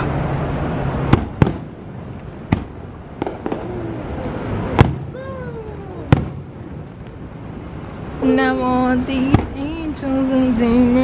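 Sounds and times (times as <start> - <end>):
fireworks bangs: 0.0 - 7.6, 9.2 - 9.7.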